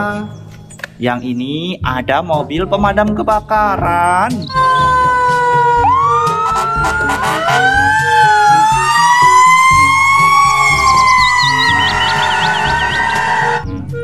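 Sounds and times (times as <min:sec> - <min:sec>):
background music: 0:00.0 - 0:14.0
fire engine siren wailing: 0:04.5 - 0:13.7.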